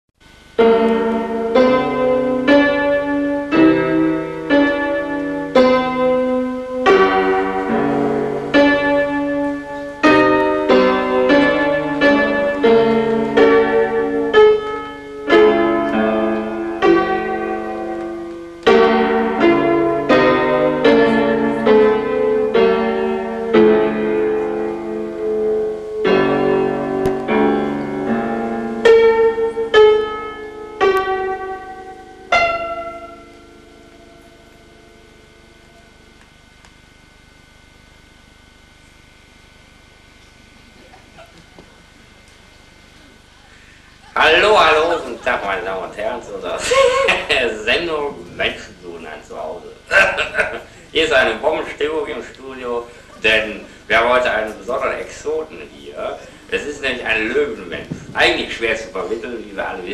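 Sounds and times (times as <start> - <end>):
solo piano music: 0.2 - 36.4.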